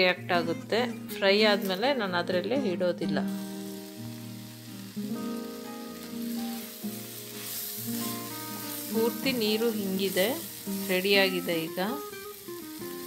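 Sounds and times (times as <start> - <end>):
background music of held notes: 0.0 - 13.0
vegetables sizzling in a pan: 0.0 - 13.0.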